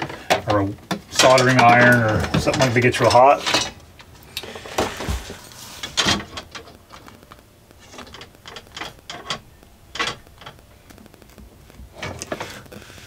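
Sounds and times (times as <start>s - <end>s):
hot tool crackling through foam: 6.6s - 13.0s.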